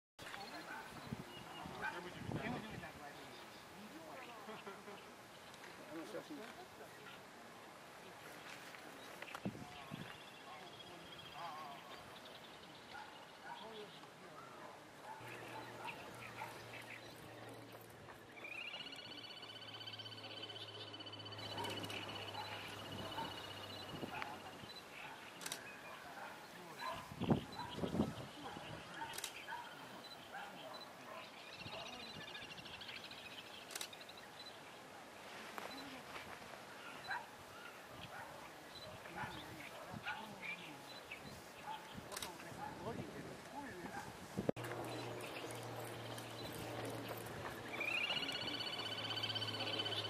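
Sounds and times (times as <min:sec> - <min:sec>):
bird chirps: 0:15.1 - 0:34.8, 0:44.6 - 0:50.0
bird trill: 0:44.8 - 0:50.0.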